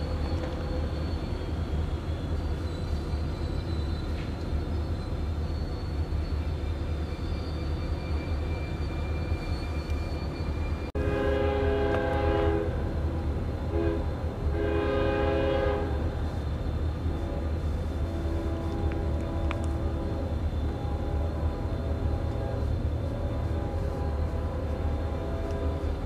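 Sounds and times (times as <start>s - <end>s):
diesel locomotives rumbling: 0.0s - 26.0s
locomotive air horn blasts: 11.0s - 12.8s, 13.7s - 16.1s, 17.2s - 26.0s.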